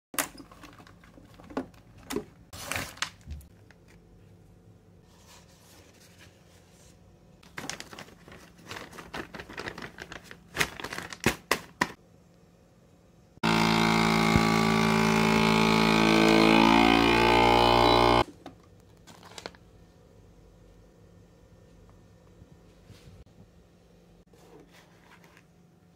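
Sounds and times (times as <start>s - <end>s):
plastic bags crinkling: 7.4s - 11.9s
vacuum sealer pump humming: 13.4s - 18.3s.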